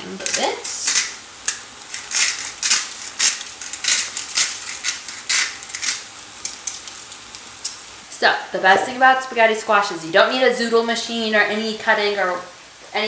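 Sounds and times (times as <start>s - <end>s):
salt grinder crunching: 0.9s - 7.0s.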